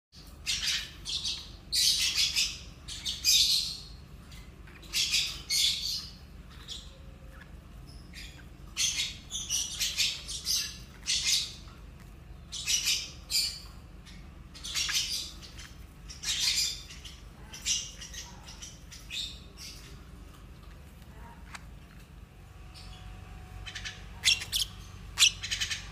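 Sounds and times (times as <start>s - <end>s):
bird chicks squawking: 0.2s - 11.7s, 12.4s - 20.0s, 22.7s - 25.9s.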